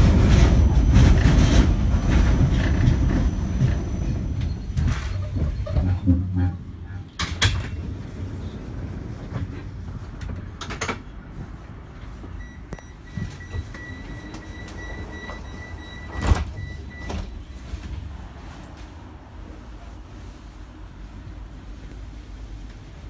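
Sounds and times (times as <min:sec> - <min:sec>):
tram rumbling: 0:00.0 - 0:23.0.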